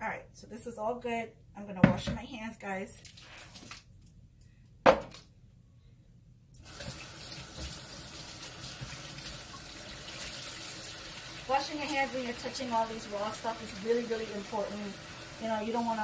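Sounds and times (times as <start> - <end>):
tap water running: 6.6 - 16.0.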